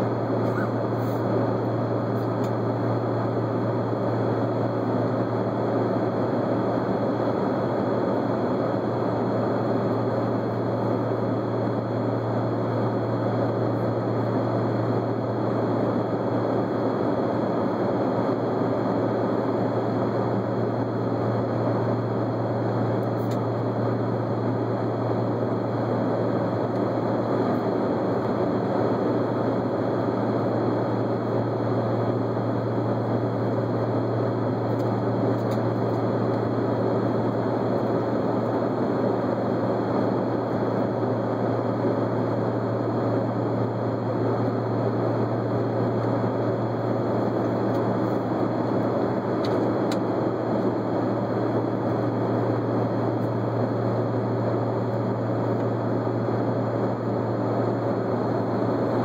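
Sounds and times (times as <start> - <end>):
airplane cabin rushing drone: 0.0 - 5.9
constant low hum: 0.0 - 59.0.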